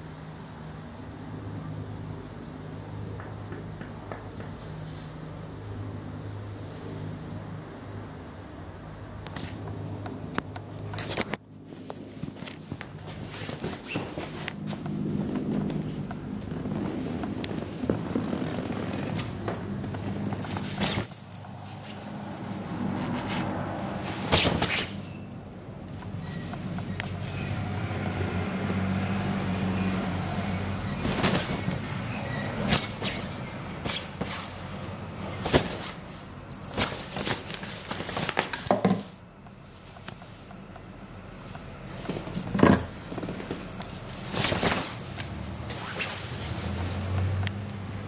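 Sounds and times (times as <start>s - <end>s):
fabric tunnel rustling: 12.6s - 25.3s
small bell jingling: 19.1s - 22.8s, 24.4s - 25.5s, 26.3s - 39.3s, 42.3s - 47.3s.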